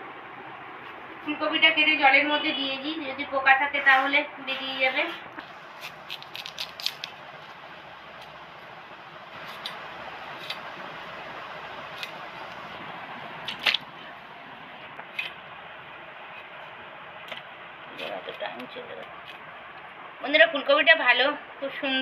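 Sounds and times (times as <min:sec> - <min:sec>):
steady hiss: 0:05.3 - 0:20.2
blade cutting crisp vegetable stalks: 0:05.4 - 0:07.2, 0:09.4 - 0:10.8.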